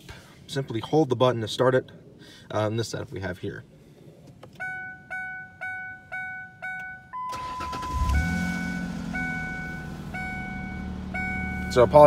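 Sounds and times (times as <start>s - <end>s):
car engine idling: 3.8s - 12.0s
dashboard warning chime: 4.5s - 12.0s.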